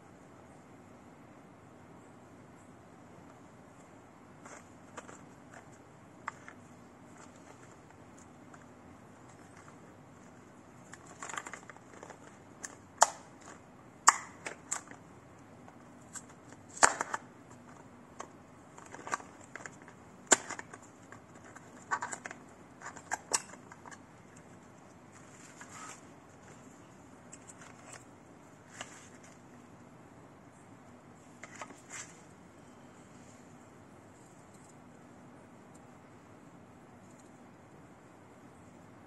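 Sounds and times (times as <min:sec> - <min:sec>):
card and plastic crinkling: 0:04.4 - 0:29.5
box clicks and snaps: 0:11.2 - 0:15.0, 0:16.2 - 0:17.2, 0:18.2 - 0:20.8.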